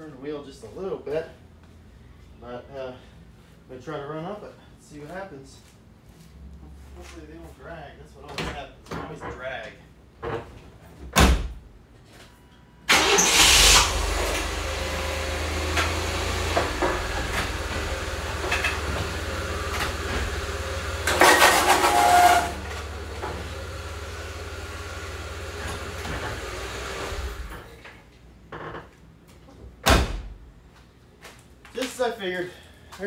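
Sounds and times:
pickup engine starting and idling: 0:12.9 - 0:27.5
plastic ramps scraping on concrete: 0:21.1 - 0:22.6.

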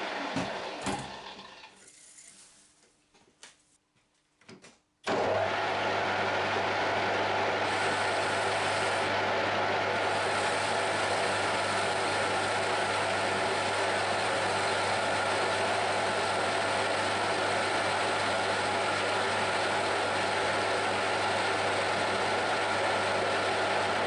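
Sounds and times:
metal lathe cutting: 0:06.4 - 0:24.0.

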